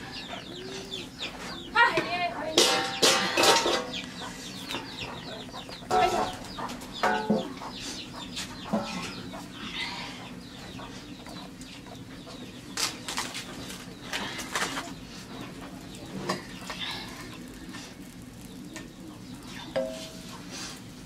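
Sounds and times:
chickens clucking: 0:00.0 - 0:21.0
metal pans clinking and scraping: 0:02.5 - 0:04.0, 0:05.9 - 0:06.4, 0:07.0 - 0:07.5, 0:19.7 - 0:20.3.

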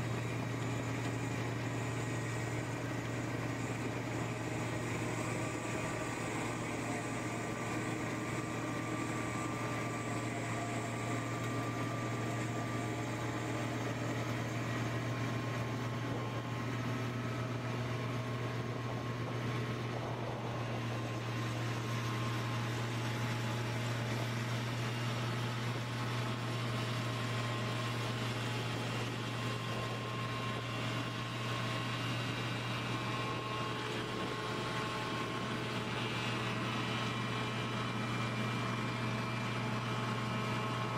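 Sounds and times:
snow blower engine drone: 0:00.0 - 0:40.9.

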